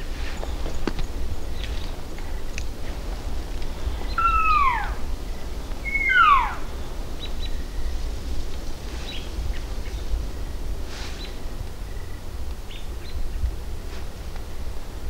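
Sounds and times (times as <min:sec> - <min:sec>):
elk mews sliding down in pitch: 0:04.2 - 0:05.0.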